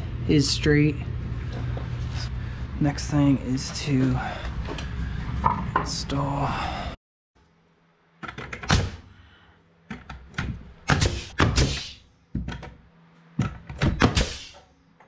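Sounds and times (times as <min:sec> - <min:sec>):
pneumatic nail gun firing: 0:10.9 - 0:12.0, 0:13.8 - 0:14.6.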